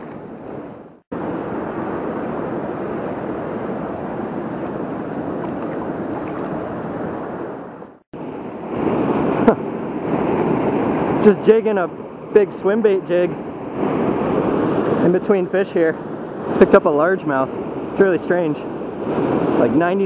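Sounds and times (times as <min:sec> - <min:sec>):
river current rushing: 0:00.0 - 0:12.3.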